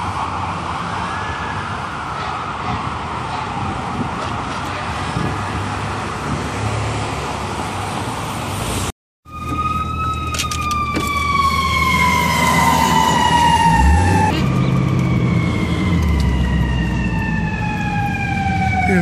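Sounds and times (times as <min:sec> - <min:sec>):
distant siren: 0:00.0 - 0:04.5, 0:09.2 - 0:19.0
street noise: 0:00.0 - 0:19.0
truck engine hum: 0:07.3 - 0:19.0
loud falling siren tone: 0:09.3 - 0:19.0.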